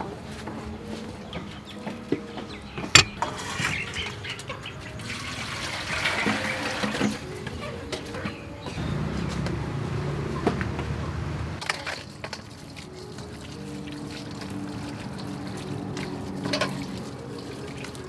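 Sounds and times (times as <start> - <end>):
sharp knock: 3.0 - 3.2
water pouring into a wok: 4.9 - 7.3, 11.6 - 18.0.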